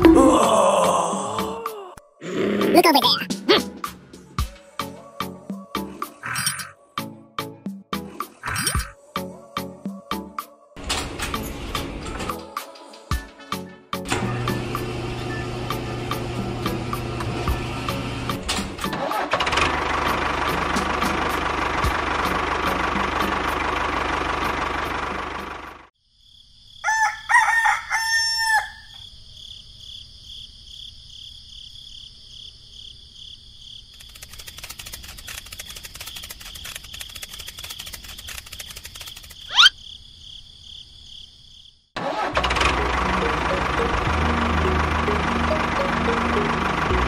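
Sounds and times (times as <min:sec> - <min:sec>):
rooster crowing: 0:26.8 - 0:29.0.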